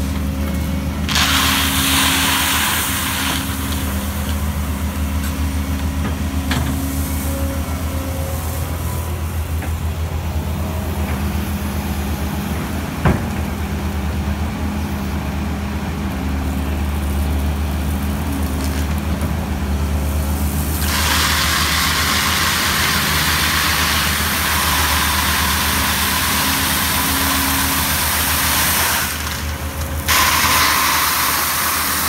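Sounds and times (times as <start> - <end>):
excavator engine running: 0.0 - 32.0
gravel pouring hiss: 1.0 - 6.0, 20.0 - 32.0.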